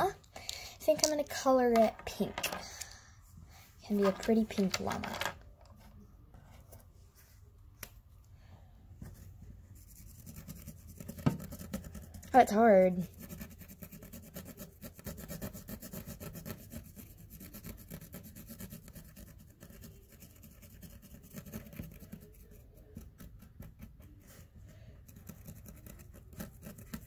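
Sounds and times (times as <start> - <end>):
marker scratching on fabric: 9.0 - 27.0.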